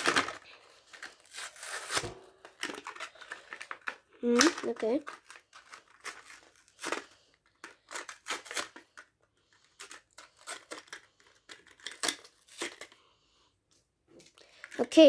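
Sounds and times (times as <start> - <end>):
cardboard tearing: 0.0 - 3.4, 4.3 - 7.1, 7.8 - 8.8
plastic crinkling: 0.0 - 13.0.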